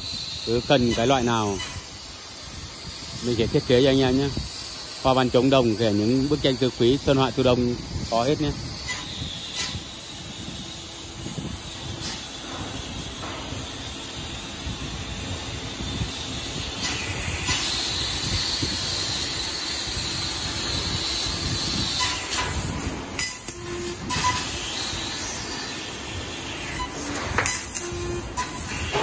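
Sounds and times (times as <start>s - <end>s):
laser cutter hissing: 0.0s - 29.0s
short tones: 23.2s - 24.6s, 26.7s - 29.0s.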